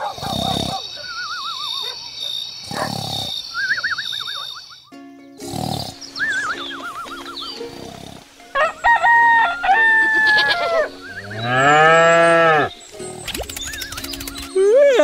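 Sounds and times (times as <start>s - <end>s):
rooster crowing: 8.6s - 12.7s
cow mooing: 10.2s - 12.7s.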